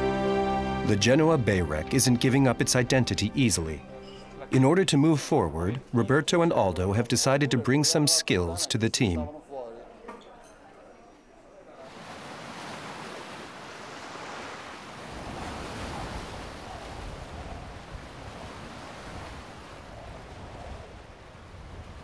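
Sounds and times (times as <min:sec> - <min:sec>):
surf washing against rocks: 0:11.9 - 0:22.0
wind rumble on microphone: 0:15.0 - 0:22.0.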